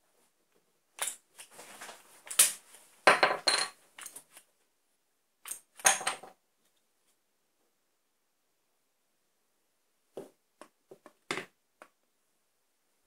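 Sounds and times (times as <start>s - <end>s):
wooden dowel falling on desk: 3.1s - 3.8s.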